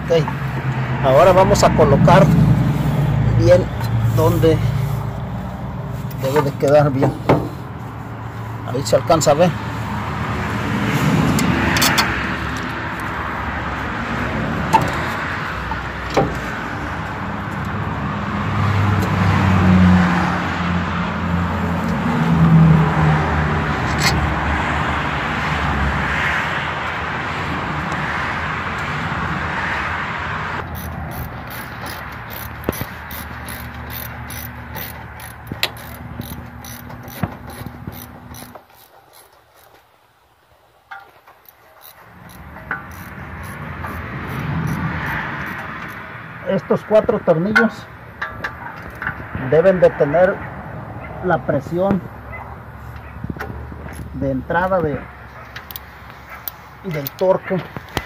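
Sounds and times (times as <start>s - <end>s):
vehicle engine droning: 0.0s - 58.0s
metal clicks and knocks: 14.7s - 16.5s, 30.6s - 39.9s, 40.9s - 44.8s, 47.5s - 49.4s
ratchet clicking: 30.6s - 39.9s, 40.9s - 46.1s, 55.5s - 57.2s.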